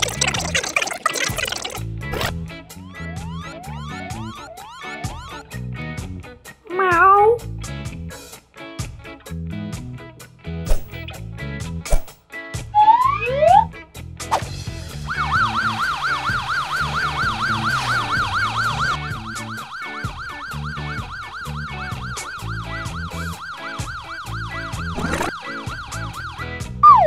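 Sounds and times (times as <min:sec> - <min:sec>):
background music with bass line: 0:01.8 - 0:06.6, 0:07.4 - 0:27.0
cartoon fire engine siren: 0:03.0 - 0:05.4, 0:12.7 - 0:13.7, 0:15.0 - 0:27.0.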